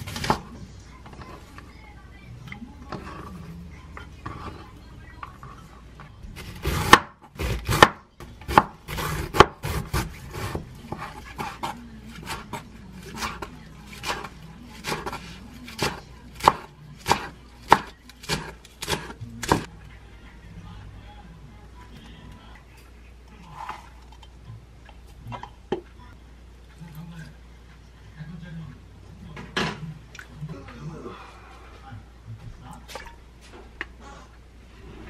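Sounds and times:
knife chopping on wooden board: 0:06.4 - 0:19.7.

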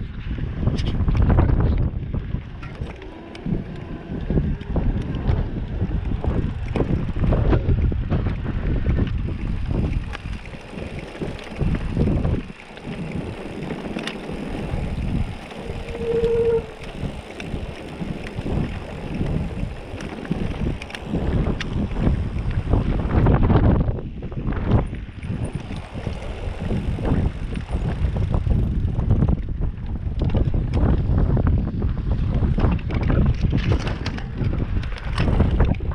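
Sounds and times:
bike rattling: 0:00.0 - 0:35.9
wind rumbling on microphone: 0:00.0 - 0:35.9
tyres rolling over gravel: 0:02.4 - 0:23.3.

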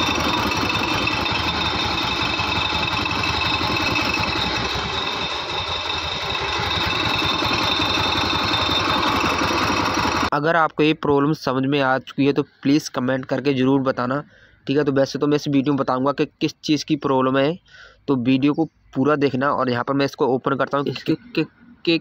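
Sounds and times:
scooter engine idling: 0:00.0 - 0:10.3
starter ratchet rubbing: 0:00.0 - 0:10.3.

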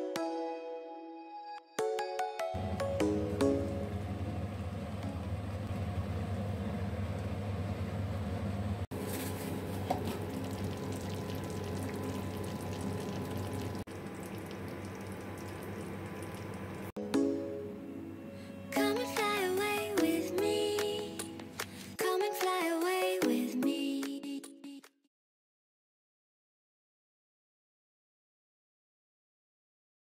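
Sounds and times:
low hum: 0:02.6 - 0:08.9
food bubbling in a pan: 0:09.6 - 0:16.9.

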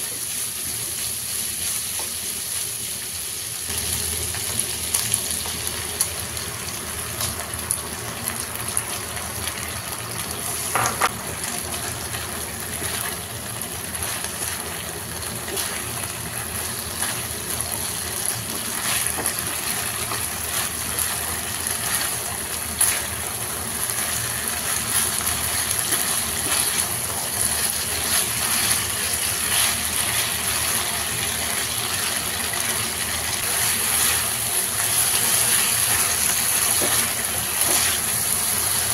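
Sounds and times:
meat sizzling in a frying pan: 0:00.0 - 0:38.9
spatula scraping and knocking pan: 0:10.7 - 0:11.1, 0:34.9 - 0:38.1.

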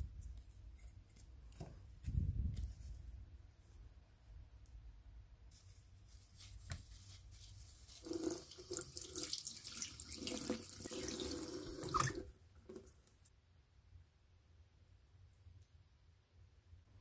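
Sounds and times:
tap water splashing in sink: 0:08.1 - 0:12.9.

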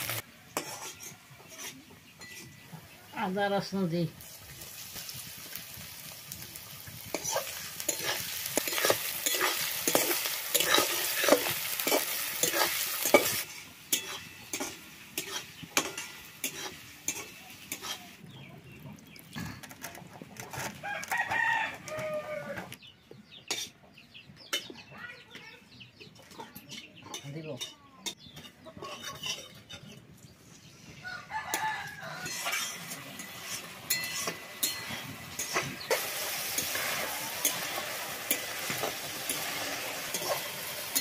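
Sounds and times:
onions sizzling in oil: 0:00.0 - 0:02.0, 0:02.8 - 0:18.2, 0:31.5 - 0:41.0
metal spatula scraping wok: 0:00.0 - 0:02.8, 0:07.0 - 0:18.1, 0:26.2 - 0:30.1, 0:31.4 - 0:41.0
rooster crowing: 0:20.8 - 0:22.8, 0:31.0 - 0:32.6.

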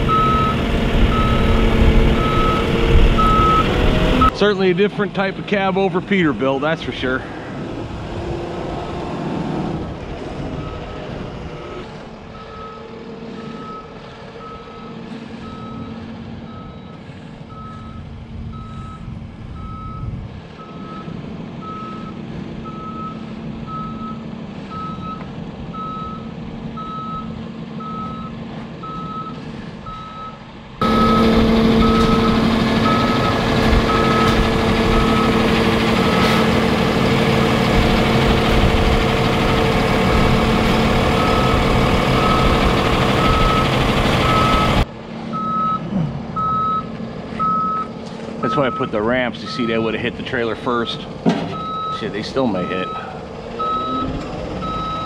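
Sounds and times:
diesel engine idling: 0:00.0 - 0:08.2, 0:09.9 - 0:55.0
reverse alarm beeping: 0:00.1 - 0:01.6, 0:02.2 - 0:04.4, 0:25.8 - 0:36.6, 0:38.0 - 0:45.8, 0:46.4 - 0:49.9, 0:50.8 - 0:55.0.

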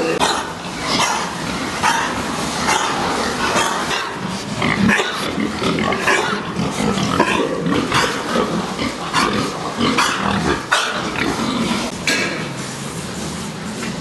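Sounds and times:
pigs grunting: 0:00.0 - 0:12.5.

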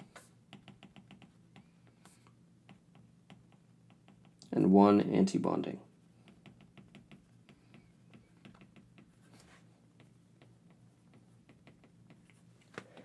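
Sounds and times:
stylus tapping on tablet screen: 0:00.0 - 0:04.4, 0:06.2 - 0:09.3, 0:10.0 - 0:12.4.

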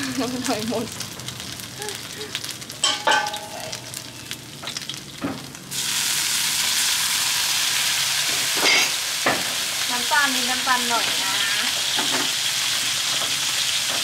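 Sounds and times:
food sizzling in oil: 0:00.0 - 0:14.0
loud hiss of sauce in wok: 0:05.7 - 0:09.8.

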